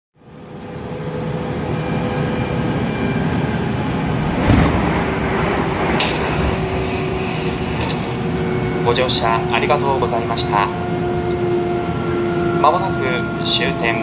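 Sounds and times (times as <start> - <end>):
train running rumble: 0.5 - 14.0
loud knock: 4.2 - 6.4.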